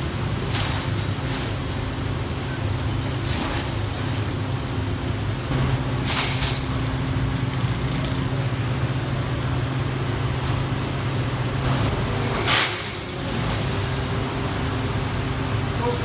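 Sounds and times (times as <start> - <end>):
low hum of workshop machinery: 0.0 - 16.0
metal clank: 5.8 - 7.1, 11.7 - 14.0
small metal parts clattering: 6.0 - 6.9, 12.2 - 13.9.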